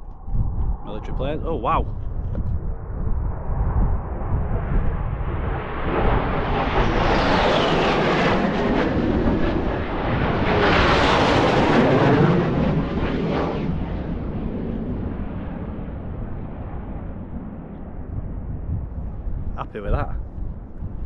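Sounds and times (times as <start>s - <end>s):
jet roar passing: 2.8s - 18.0s.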